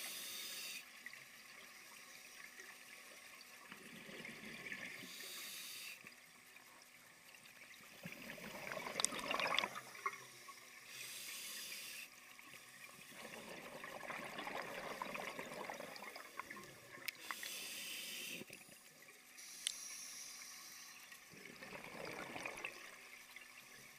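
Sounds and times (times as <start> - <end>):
regulator hissing inhalations: 0.0 - 0.9, 5.0 - 6.1, 10.9 - 12.1, 17.1 - 18.5, 19.4 - 21.2.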